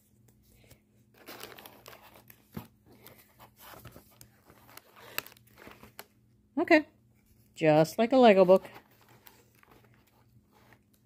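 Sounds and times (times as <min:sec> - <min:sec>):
paper and packaging crinkling: 0:00.6 - 0:06.2, 0:08.2 - 0:11.0.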